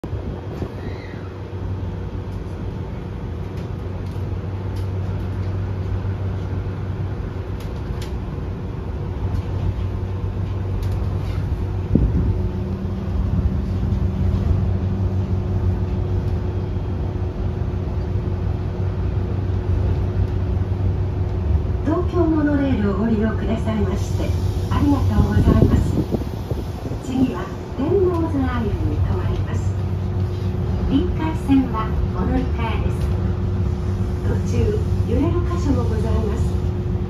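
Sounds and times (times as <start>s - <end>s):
monorail cabin rumble: 0.0s - 37.0s.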